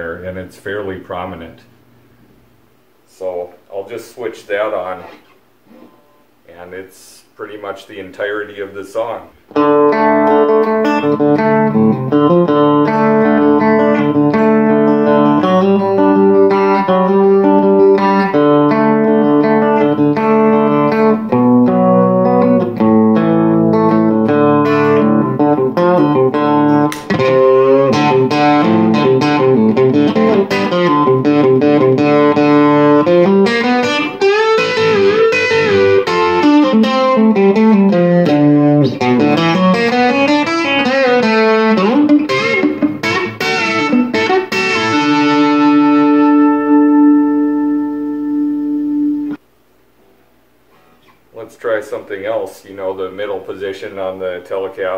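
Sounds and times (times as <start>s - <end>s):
electric guitar country lead: 4.7s - 6.2s, 9.0s - 49.4s.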